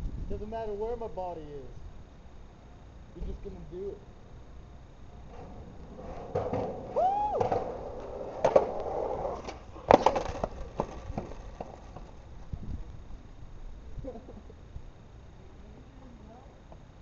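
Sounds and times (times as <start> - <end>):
skateboard wheels rolling on concrete: 3.2 - 14.8
skateboard knocking and clattering: 5.2 - 12.5.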